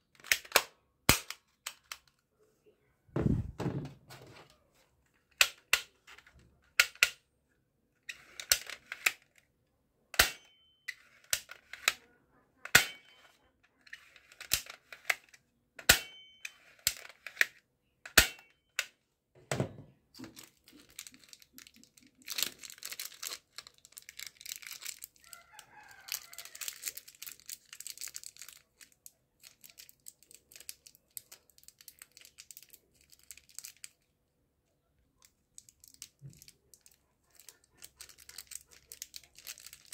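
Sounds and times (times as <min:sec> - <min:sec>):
plastic toy pistol clicks: 0:00.2 - 0:02.0, 0:06.8 - 0:07.2, 0:10.1 - 0:10.5, 0:16.8 - 0:18.9
toy pistol slide scraping: 0:08.1 - 0:09.3, 0:13.8 - 0:15.4
plastic packet crinkling: 0:20.2 - 0:34.1, 0:35.4 - 0:39.9.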